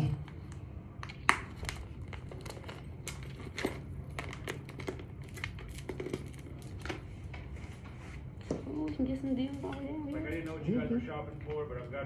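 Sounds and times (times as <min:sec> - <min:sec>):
plastic purse crinkling: 0:01.0 - 0:07.3.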